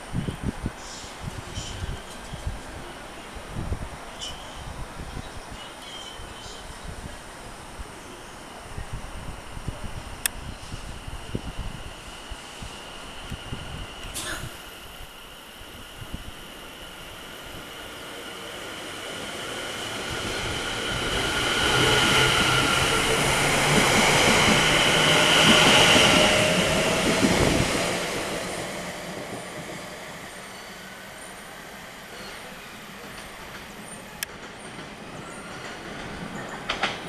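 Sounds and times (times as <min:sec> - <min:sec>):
electric train drive whine: 0:07.7 - 0:34.3.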